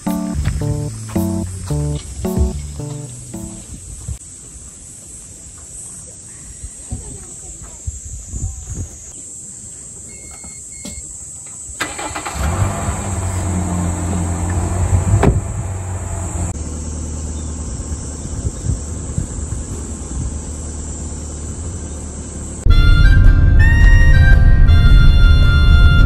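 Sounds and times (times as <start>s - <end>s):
car engine starting and running: 0.0s - 3.6s, 11.8s - 22.7s.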